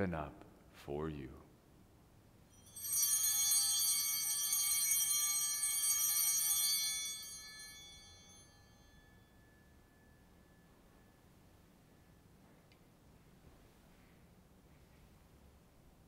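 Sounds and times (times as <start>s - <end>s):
altar bells ringing: 2.5s - 12.2s.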